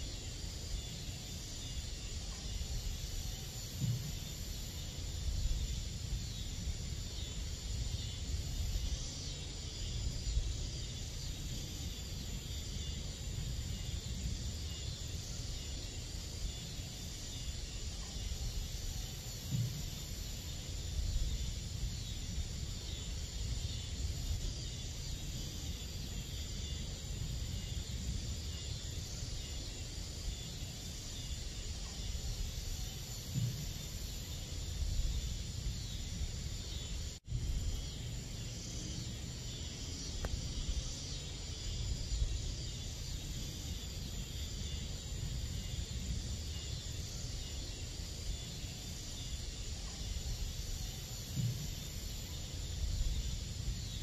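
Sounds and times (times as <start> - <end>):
crickets and night insects: 0.0 - 54.0.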